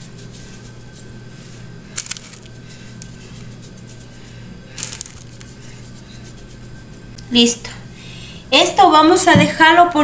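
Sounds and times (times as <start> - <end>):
hands rubbing spice on meat: 0.0 - 7.2
steady low hum: 0.0 - 10.0.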